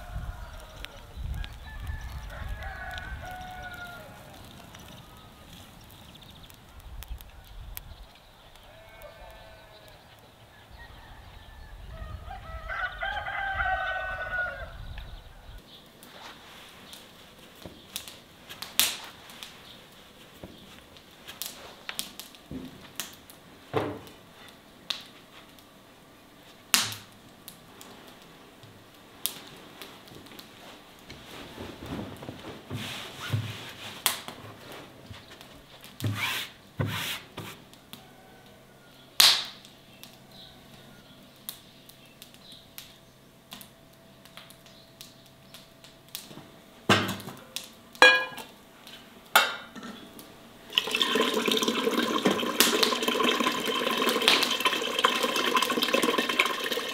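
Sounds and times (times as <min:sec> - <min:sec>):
knocks and clatters of food preparation: 0:21.4 - 0:24.2, 0:31.1 - 0:38.1, 0:46.2 - 0:56.9.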